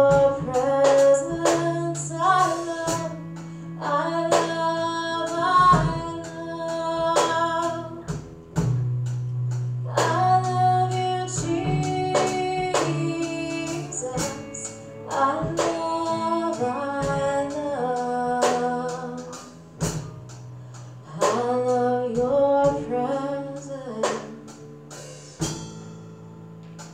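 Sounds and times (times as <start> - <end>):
woman singing: 0.0 - 8.3, 9.8 - 20.1, 21.0 - 24.7
worship band playing: 0.0 - 25.8
drum and cymbal hits: 7.1 - 17.6, 18.4 - 20.5, 24.0 - 26.1.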